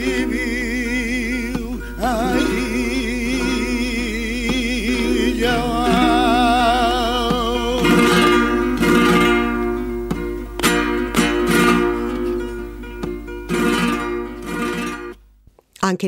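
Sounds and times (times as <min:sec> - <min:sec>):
man singing long wavering notes: 0:00.0 - 0:09.2
guitar strumming chords: 0:00.0 - 0:15.3.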